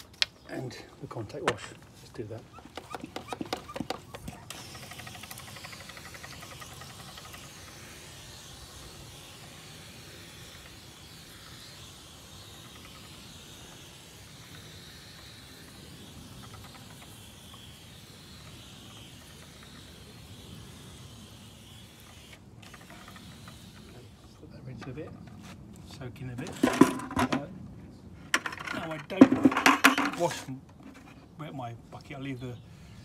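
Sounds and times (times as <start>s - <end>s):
pressure sprayer hissing: 1.4s - 24.4s.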